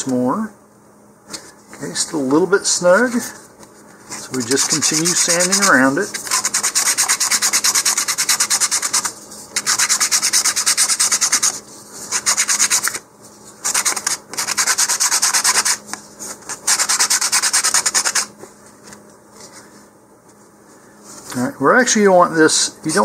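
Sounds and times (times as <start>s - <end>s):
sandpaper rubbing wood: 4.4s - 13.0s, 13.6s - 15.8s, 16.5s - 18.3s.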